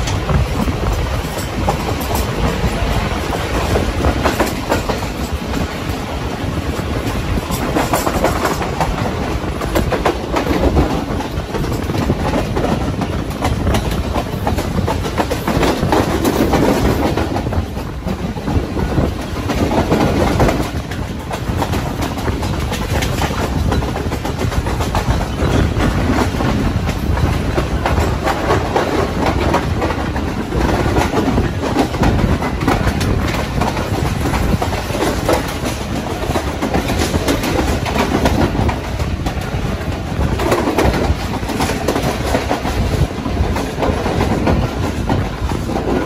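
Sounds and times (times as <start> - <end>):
train rumbling: 0.0 - 46.0
wheels clacking over rail joints: 0.0 - 46.0.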